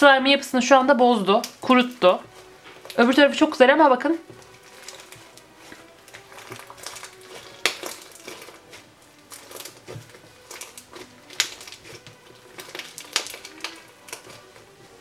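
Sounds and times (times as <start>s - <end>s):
slime crackling and popping: 1.2s - 3.5s, 4.2s - 15.0s.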